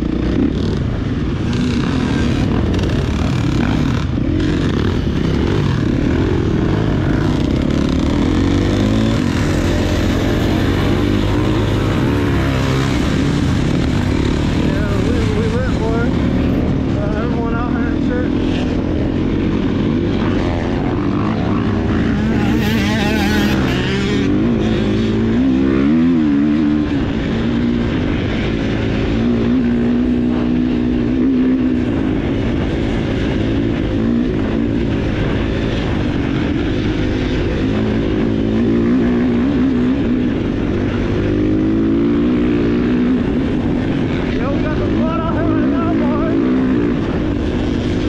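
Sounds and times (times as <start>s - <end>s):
dirt bike engine revving: 0.0s - 48.0s.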